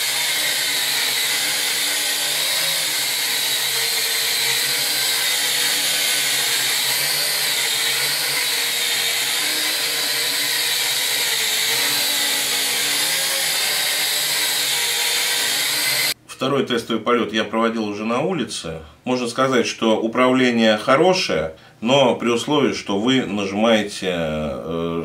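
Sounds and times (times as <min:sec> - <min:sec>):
toy drone propellers whining: 0:00.0 - 0:16.2.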